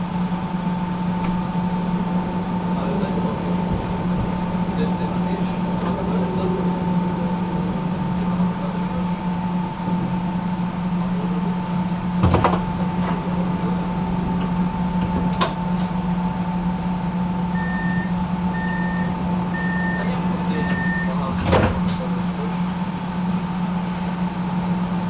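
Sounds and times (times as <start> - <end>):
tram low hum: 0.0 - 25.0
high whine: 13.3 - 21.3
door warning beeps: 17.5 - 21.8.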